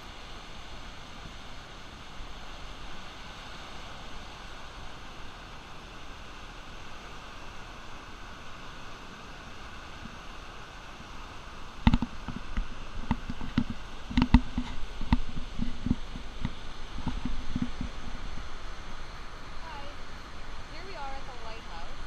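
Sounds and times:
knocks and thumps near microphone: 0:11.9 - 0:18.0.

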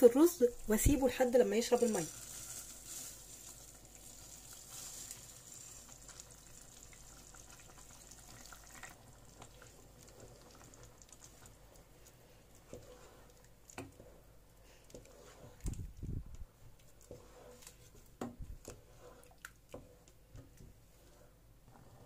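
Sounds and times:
wooden spoon stirring: 0:00.0 - 0:22.0
rice pouring into a pot: 0:01.7 - 0:11.3
pot of broth simmering: 0:01.9 - 0:22.0.

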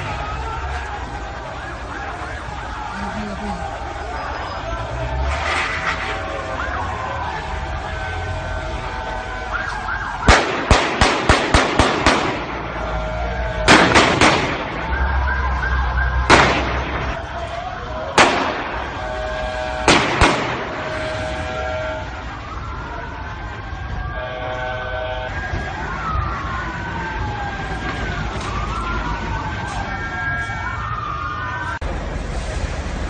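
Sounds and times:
sirens wailing: 0:00.0 - 0:33.0
loud sharp bangs: 0:10.2 - 0:12.9, 0:13.6 - 0:15.1, 0:16.2 - 0:17.3, 0:18.1 - 0:22.0.

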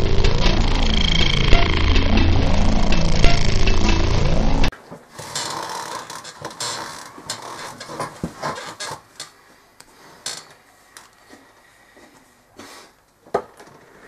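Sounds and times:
loud music: 0:00.0 - 0:04.7.

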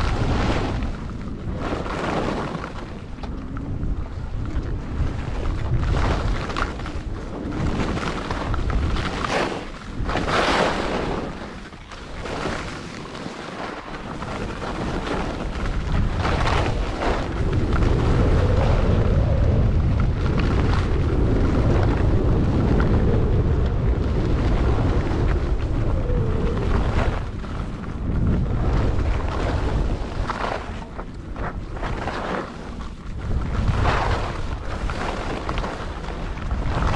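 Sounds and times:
skis scraping on packed snow: 0:00.0 - 0:23.0, 0:23.8 - 0:36.9
wind rumbling on microphone: 0:00.0 - 0:36.9.

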